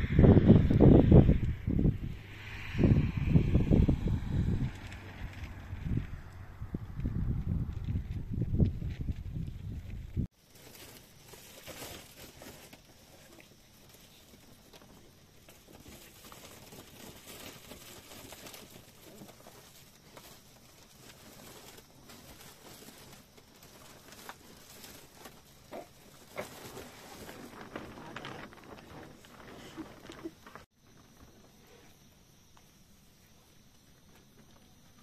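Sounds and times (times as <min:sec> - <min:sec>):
sack rustling: 0:15.1 - 0:30.7.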